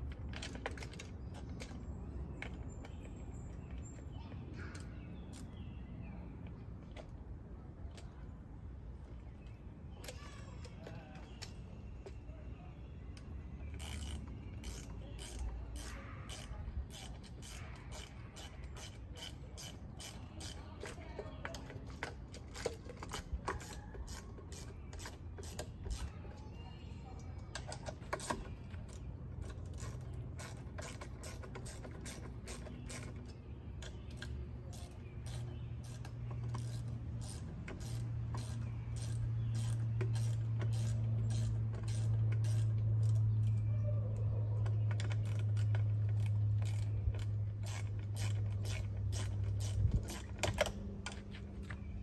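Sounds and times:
screws clicking and tapping: 0:13.2 - 0:26.1, 0:27.4 - 0:43.7, 0:44.6 - 0:51.8.

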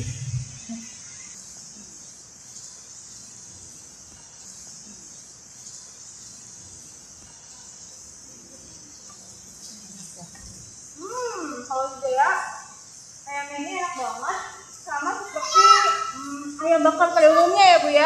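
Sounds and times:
steady high-pitched hiss: 0:00.0 - 0:18.0.

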